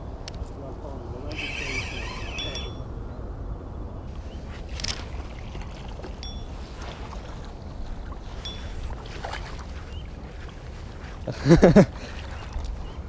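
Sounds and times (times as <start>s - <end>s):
wind rumbling on microphone: 0.0s - 13.0s
fishing reel cranking: 1.3s - 2.8s
lapping water: 4.8s - 13.0s.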